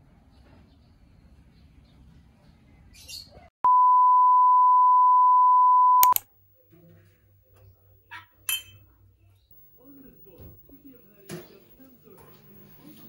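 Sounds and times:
steady electronic beep: 3.7s - 6.2s
click: 6.0s - 6.2s.

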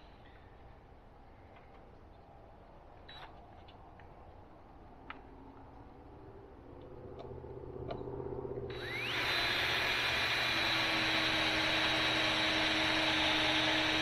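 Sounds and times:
cordless drill driving screw into wood: 8.7s - 14.0s.

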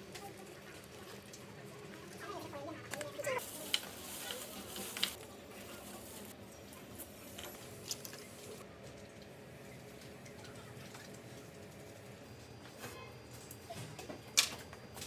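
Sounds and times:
faint clicks and handling noises: 0.0s - 9.3s
plastic bag rustling: 3.2s - 6.3s.

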